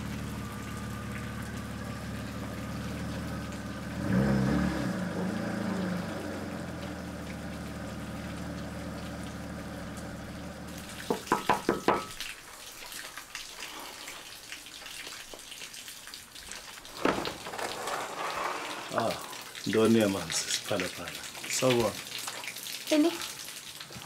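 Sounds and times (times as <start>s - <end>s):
car engine idling: 0.0s - 12.0s
knocking on a door: 11.1s - 12.1s.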